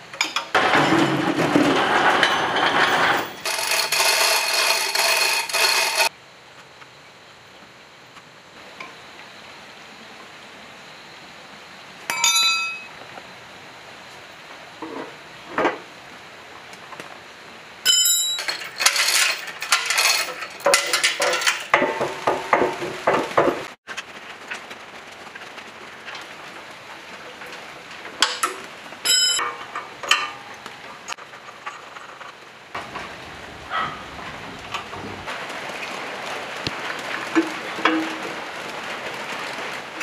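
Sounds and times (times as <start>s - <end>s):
heavy metal parts clanking: 0.2s - 6.1s, 12.1s - 12.9s, 17.9s - 23.8s, 28.1s - 35.3s
knocks and scrapes: 0.5s - 6.1s, 18.4s - 24.5s, 31.1s - 35.3s.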